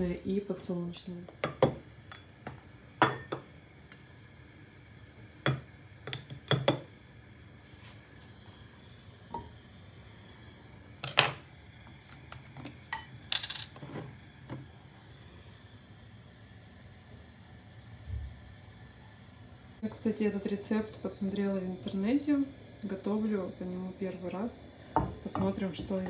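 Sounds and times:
faint steady hiss: 0.0 - 26.0
utensils clinking at frying pan: 12.9 - 13.8.

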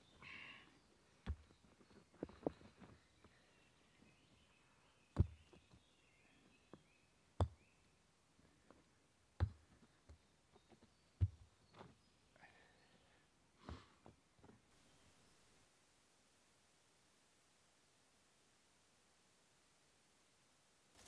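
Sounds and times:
faint bird chirps: 0.0 - 8.6, 9.8 - 13.3, 14.7 - 15.5
light stone taps: 6.7 - 7.6.

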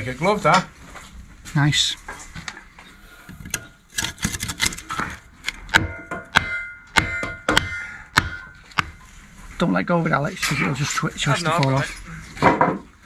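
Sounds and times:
metallic knocks on steel beam: 5.7 - 9.0.

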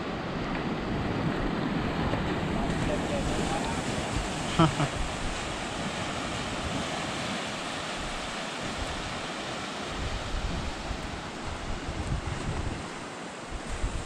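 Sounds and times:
small waves washing onto beach: 0.0 - 14.0
wind buffeting microphone: 0.0 - 14.0.

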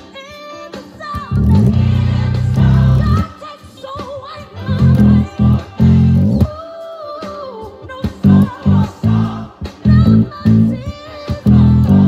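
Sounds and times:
electric bass guitar: 1.3 - 3.3, 4.6 - 6.5, 8.2 - 12.0
choir singing: 1.5 - 3.4, 8.3 - 10.3, 11.1 - 12.0.

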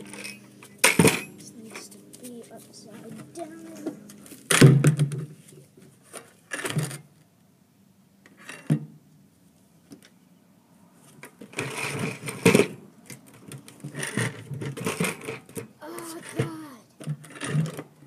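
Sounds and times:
buckets scraping together: 13.8 - 16.6.

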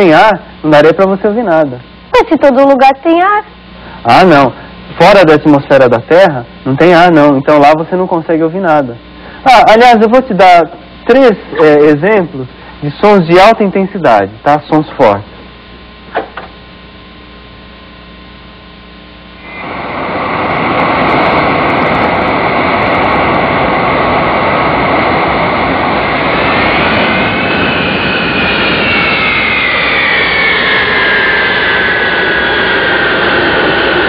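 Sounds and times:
jet fighter flying past: 19.4 - 34.0.

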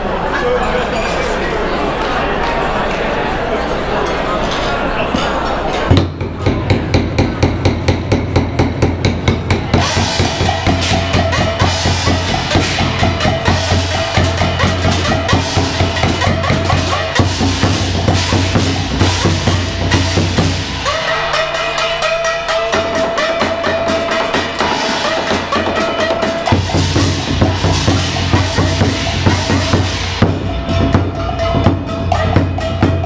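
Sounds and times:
barrel drums beating: 5.9 - 33.0
small gongs: 5.9 - 33.0
ringing hand cymbals: 6.9 - 33.0.

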